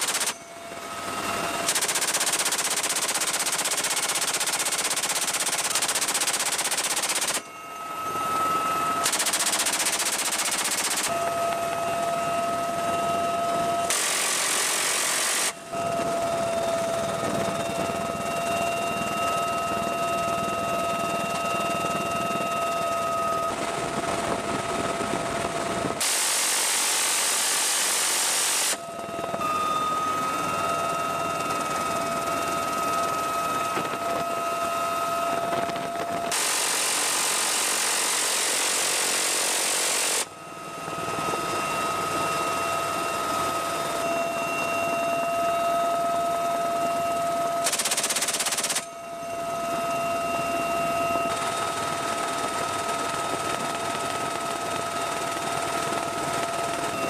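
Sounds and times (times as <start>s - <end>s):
machine-gun fire: 0.0s - 0.4s, 1.7s - 7.4s, 9.0s - 11.1s, 47.7s - 48.8s
helicopter whine: 0.0s - 57.0s.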